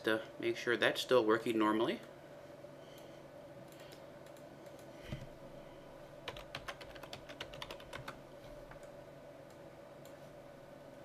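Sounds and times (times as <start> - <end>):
typing on computer keyboard: 6.2 - 8.9.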